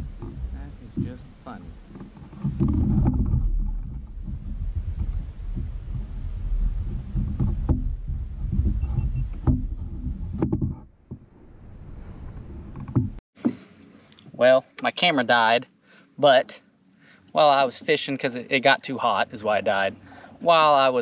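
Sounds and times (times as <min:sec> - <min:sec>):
kayak hull thumping: 0:00.0 - 0:11.6, 0:12.3 - 0:13.7.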